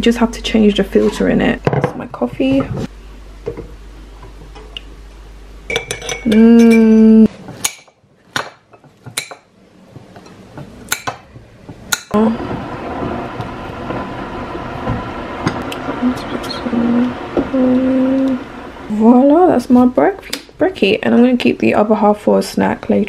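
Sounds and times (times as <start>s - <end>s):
cutlery clinking on ceramic: 5.7s - 7.0s
loud steady pitched tone: 12.2s - 19.6s.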